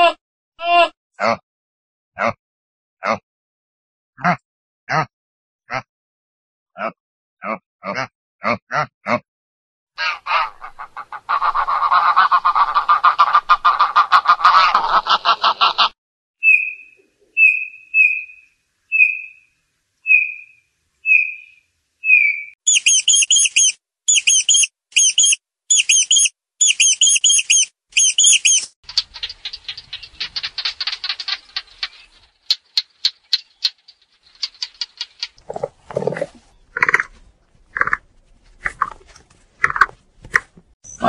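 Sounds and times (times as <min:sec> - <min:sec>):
high bird chirps: 0:16.4 - 0:35.4
bullfinch piping notes: 0:20.0 - 0:35.4
dense rattling call: 0:22.7 - 0:35.4.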